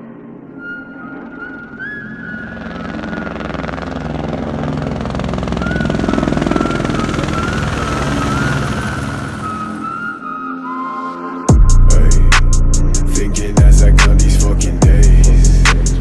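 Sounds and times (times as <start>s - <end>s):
soft wavering music melody: 0.0s - 15.6s
helicopter rotor chop: 2.4s - 10.0s.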